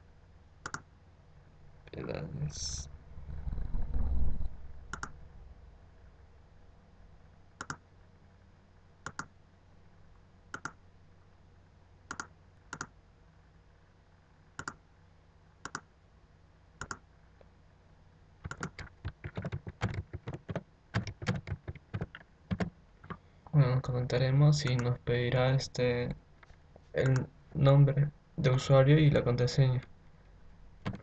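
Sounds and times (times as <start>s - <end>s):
keyboard key presses: 0.6s - 0.8s, 4.9s - 5.2s, 16.8s - 17.0s, 18.4s - 23.2s
computer mouse clicks: 0.6s - 0.9s, 4.9s - 5.2s, 7.6s - 7.8s, 9.0s - 9.3s, 10.5s - 10.8s, 12.1s - 13.0s, 14.6s - 14.8s, 15.6s - 15.9s, 16.8s - 17.0s, 18.4s - 23.2s, 24.6s - 24.9s.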